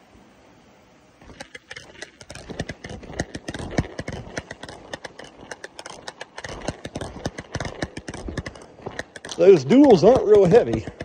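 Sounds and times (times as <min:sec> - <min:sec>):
footsteps crunching on gravel: 0:02.2 - 0:11.0.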